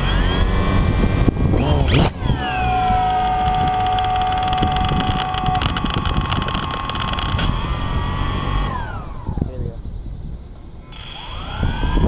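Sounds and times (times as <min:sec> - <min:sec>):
drone motors whining: 0:00.0 - 0:09.5, 0:10.7 - 0:12.0.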